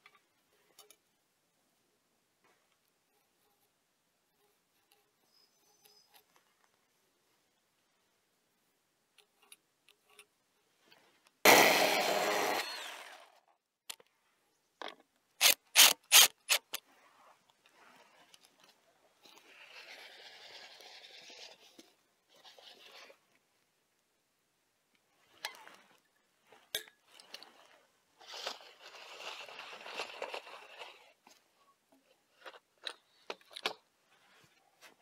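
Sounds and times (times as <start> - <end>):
power tool burst: 11.5 - 13.3.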